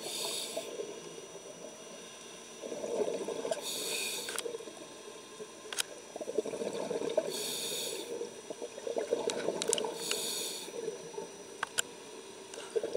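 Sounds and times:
muffled underwater water movement: 0:00.0 - 0:12.9
short hisses: 0:03.6 - 0:04.4
faint clicks: 0:11.6 - 0:12.7.

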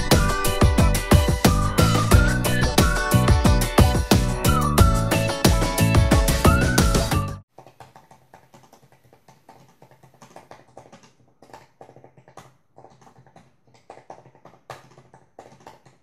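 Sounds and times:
laptop keyboard typing: 0:07.5 - 0:16.0.

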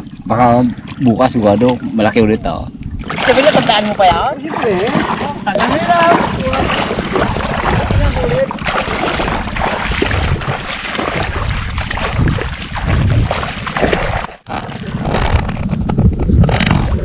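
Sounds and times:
wind buffeting microphone: 0:00.0 - 0:17.0
feet splashing in water: 0:03.0 - 0:14.8.

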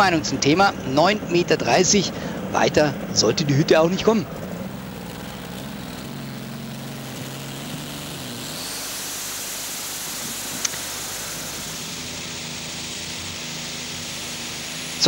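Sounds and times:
faint rising whine: 0:00.0 - 0:15.0
tractor engine droning: 0:00.0 - 0:15.0
higher hiss: 0:03.8 - 0:15.0
sharp click: 0:10.5 - 0:10.9.

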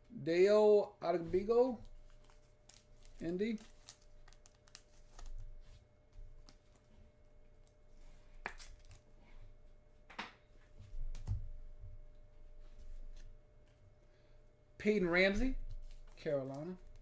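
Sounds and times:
plastic card sleeves clicking and rustling: 0:01.9 - 0:05.4.

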